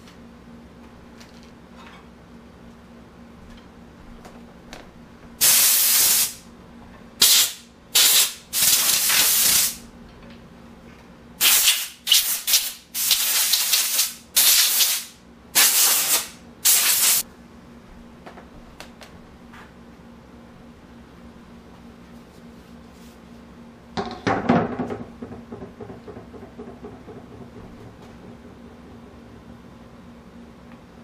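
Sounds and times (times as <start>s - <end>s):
loud bursts of hiss: 5.4s - 6.4s, 7.2s - 9.8s, 11.4s - 17.2s.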